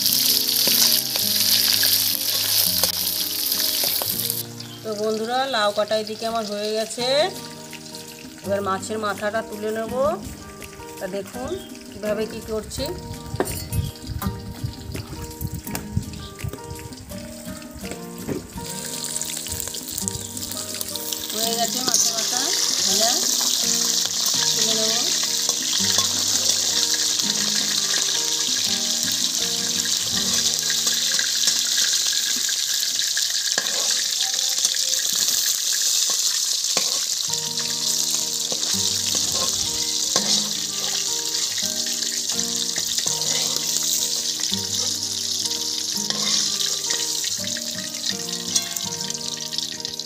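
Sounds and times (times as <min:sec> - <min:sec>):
background music: 0:00.0 - 0:50.0
fish frying in hot oil: 0:00.0 - 0:50.0
metal spatula clicking on pan: 0:33.4 - 0:34.2, 0:39.4 - 0:41.0.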